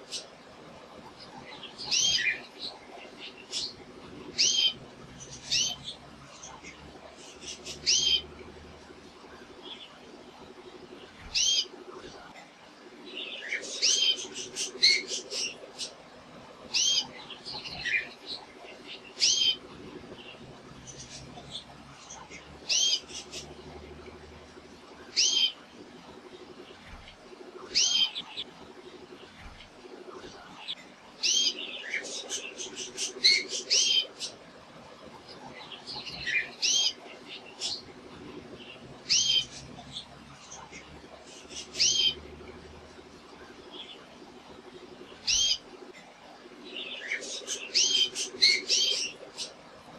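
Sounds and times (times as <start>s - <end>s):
canary singing: 1.2s - 9.0s, 9.6s - 11.8s, 13.2s - 16.0s, 16.6s - 25.6s, 27.7s - 29.0s, 31.2s - 34.4s, 35.4s - 43.0s, 44.6s - 45.9s, 46.7s - 49.6s.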